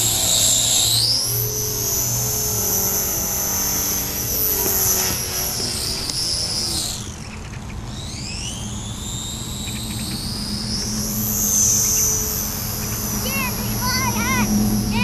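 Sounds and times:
model airplane motor whining: 0.0s - 15.0s.

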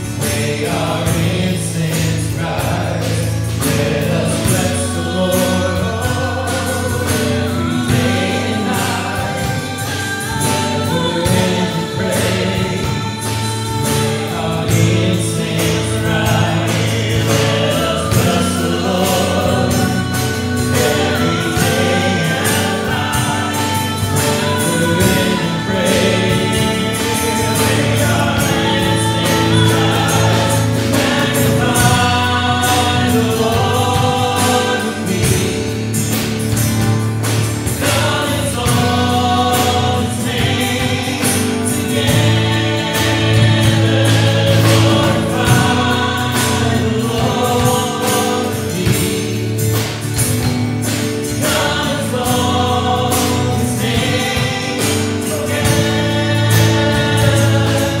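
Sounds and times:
worship band playing: 0.0s - 58.0s
woman singing into a microphone: 4.4s - 16.2s, 17.4s - 35.0s.

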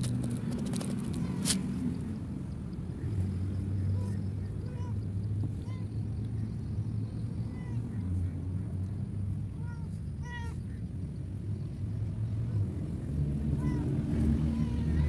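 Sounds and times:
dry kibble rattling onto stone: 0.0s - 1.6s
cat meowing: 9.6s - 10.6s.

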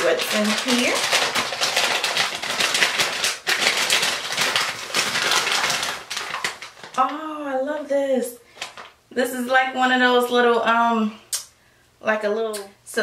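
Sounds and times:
paper bag crinkling: 0.0s - 7.2s, 8.5s - 9.0s.

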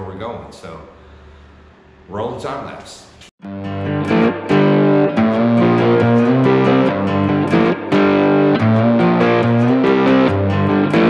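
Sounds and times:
distorted electric guitar rock: 3.4s - 11.0s.

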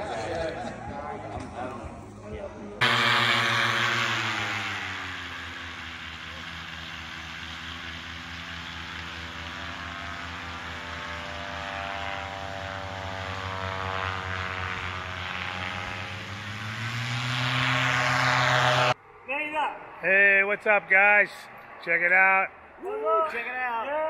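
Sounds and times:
paramotor engine and propeller: 2.8s - 19.0s.

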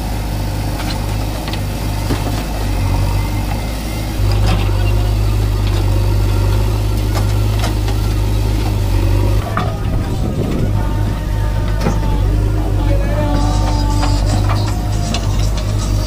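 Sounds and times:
diesel engines running: 0.0s - 16.0s.

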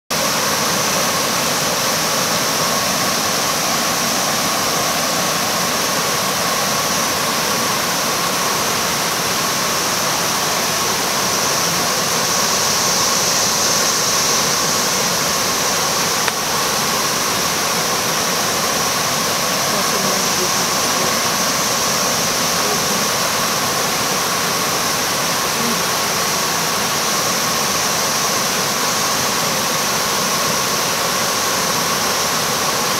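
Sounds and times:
cicadas buzzing: 0.1s - 32.9s
creek water over rocks: 0.1s - 32.9s.

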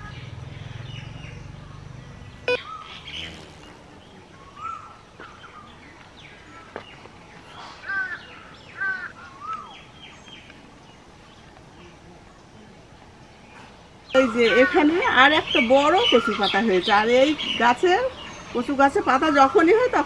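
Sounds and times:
other birds: 0.0s - 20.0s
crows cawing: 7.8s - 9.5s.

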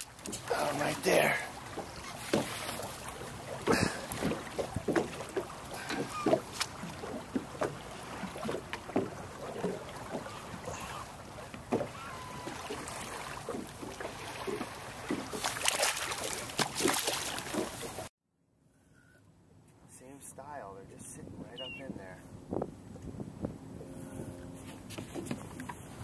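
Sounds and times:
fish splashing in water: 0.0s - 18.1s
water slapping against boat hull: 0.0s - 18.1s, 24.8s - 26.0s
knocks on boat: 1.8s - 2.8s, 3.6s - 10.4s, 11.5s - 12.5s, 13.4s - 15.5s
wind on microphone: 21.2s - 26.0s.

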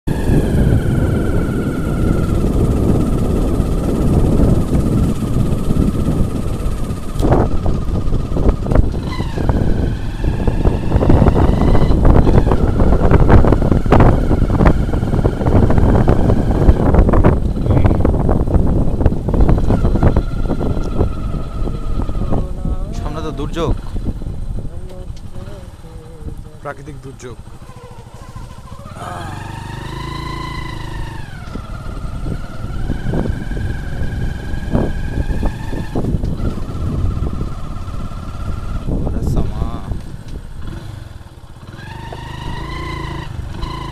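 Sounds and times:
motorcycle engine running: 0.1s - 43.9s
wind rumble on microphone: 0.1s - 43.9s
motorcycle knocking over bumps: 41.9s - 42.3s.

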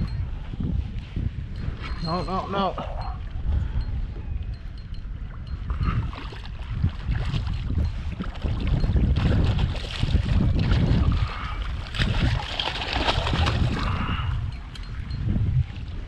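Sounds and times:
wind rumble on microphone: 0.0s - 16.0s
fish thrashing and splashing: 6.1s - 14.1s.

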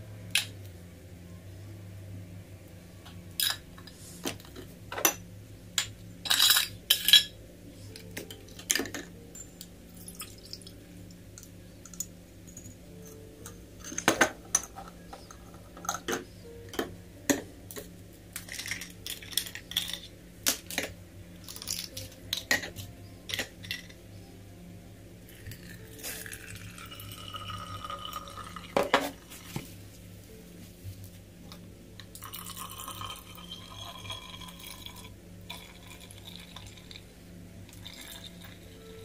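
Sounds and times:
liquid pouring into bottle: 32.2s - 37.0s.

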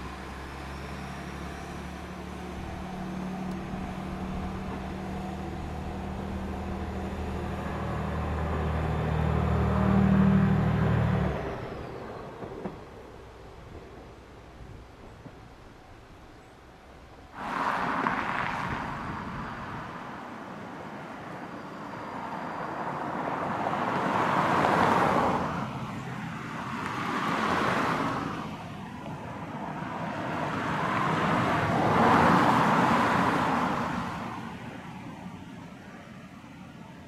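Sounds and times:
railcar running noise: 0.0s - 25.1s.

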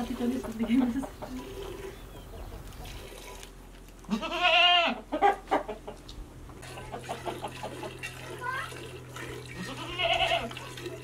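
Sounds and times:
goat bleating: 4.0s - 5.0s, 9.5s - 10.6s.

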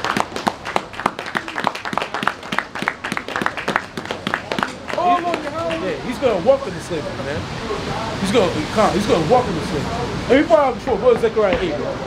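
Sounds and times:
people clapping: 0.0s - 6.0s.

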